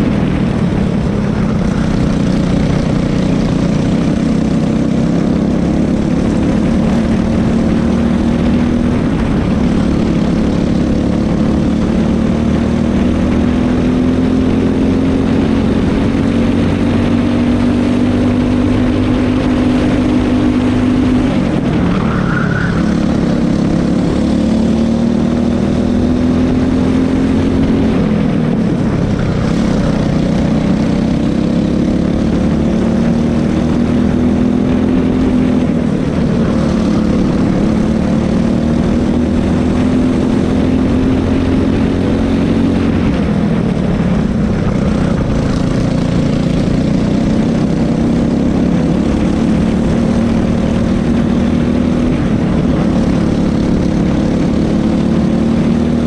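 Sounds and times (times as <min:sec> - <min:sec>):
racing kart engine at full throttle: 0:00.0 - 0:56.0
wind noise: 0:00.0 - 0:56.0.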